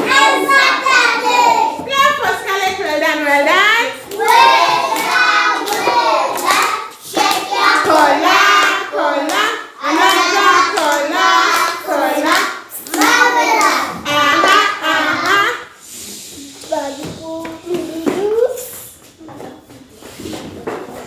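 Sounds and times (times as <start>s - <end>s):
children singing: 0.0s - 1.9s, 4.0s - 15.8s
hand claps: 4.1s - 11.0s, 11.6s - 13.8s.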